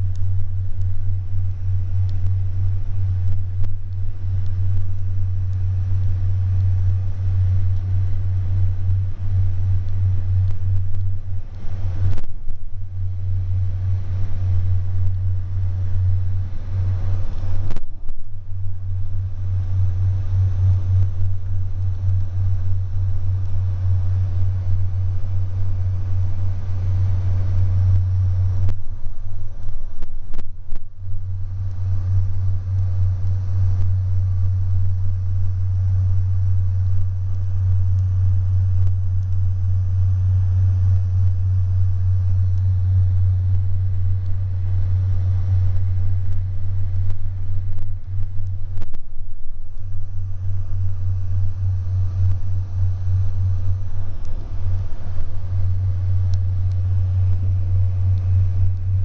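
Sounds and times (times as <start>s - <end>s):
faint clicks: 0.0s - 1.0s, 2.0s - 12.6s, 13.8s - 16.1s, 16.8s - 18.3s, 26.1s - 30.9s, 31.6s - 49.6s.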